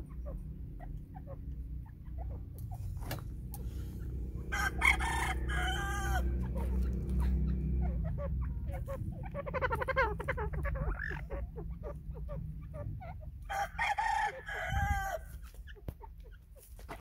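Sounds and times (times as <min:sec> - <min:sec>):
steady low rumble: 0:00.0 - 0:16.8
fowl peeping chirps: 0:00.0 - 0:17.0
fowl call with rising notes: 0:04.3 - 0:11.4.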